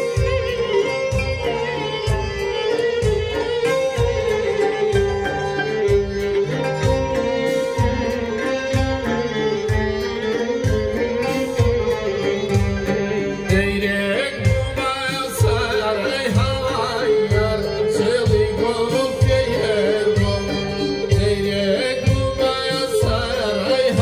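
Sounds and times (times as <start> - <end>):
keyboard with steady beat: 0.0 - 24.0
oud: 0.0 - 24.0
violins: 0.0 - 24.0
man singing into microphone: 12.2 - 24.0.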